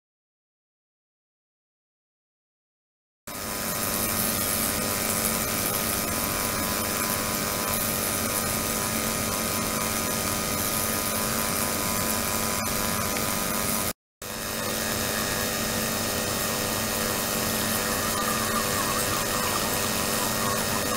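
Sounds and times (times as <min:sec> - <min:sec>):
ultrasonic cleaner hiss and hum: 0:03.3 - 0:20.9.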